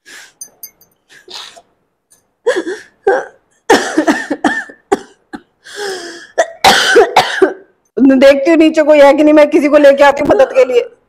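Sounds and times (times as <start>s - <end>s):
woman sobbing: 2.4s - 5.1s.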